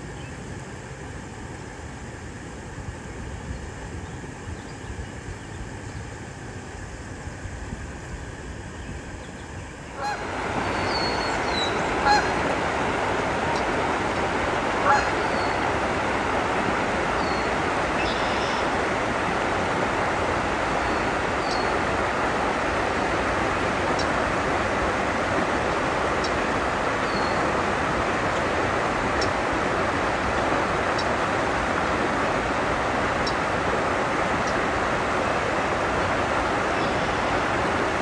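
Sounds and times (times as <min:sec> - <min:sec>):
river water rushing over rocks: 0:09.9 - 0:38.0.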